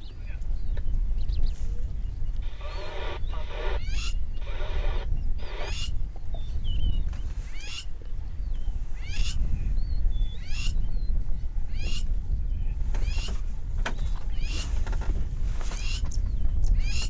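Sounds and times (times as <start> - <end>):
steady low rumble: 0.0 - 14.5
bird rising call: 2.4 - 6.0.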